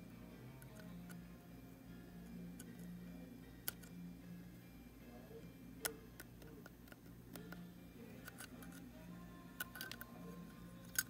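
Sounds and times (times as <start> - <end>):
low steady hum: 0.0 - 11.0
sharp handling clicks: 9.6 - 10.2, 10.8 - 11.0.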